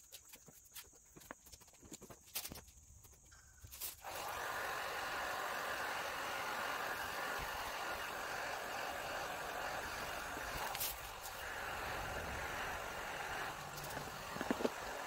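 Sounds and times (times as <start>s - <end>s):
heat gun blowing hiss: 3.8s - 15.0s.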